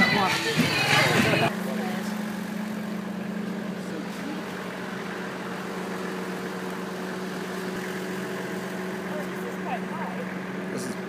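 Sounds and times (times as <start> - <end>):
van engine idling: 0.0 - 11.0.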